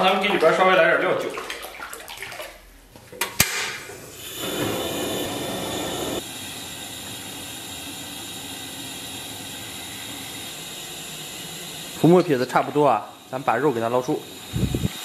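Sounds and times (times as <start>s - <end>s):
water boiling with bubbling hiss: 3.8s - 15.0s.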